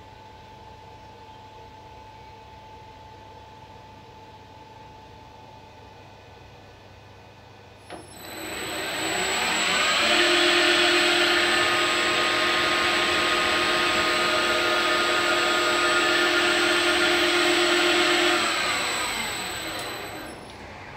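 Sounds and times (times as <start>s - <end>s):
spindle motor whine: 7.8s - 20.9s.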